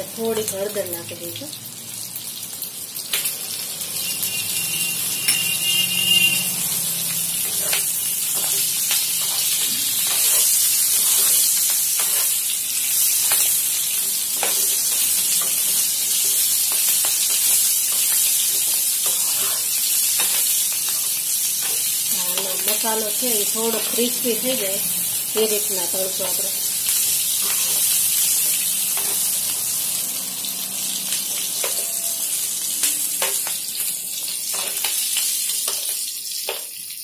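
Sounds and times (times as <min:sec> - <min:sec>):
chillies sizzling in oil: 0:00.0 - 0:37.0
spatula scraping pan: 0:14.3 - 0:21.9.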